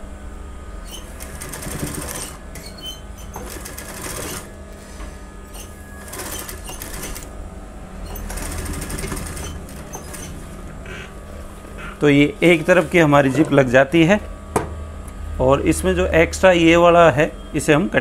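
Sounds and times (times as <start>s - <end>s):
low motor hum: 0.0s - 16.7s
sewing machine stitching: 0.9s - 4.5s, 5.5s - 7.3s, 8.0s - 10.4s.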